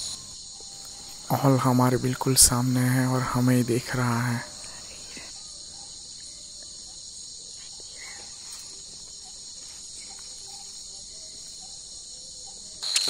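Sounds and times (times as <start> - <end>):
night insects chirring: 0.0 - 13.0.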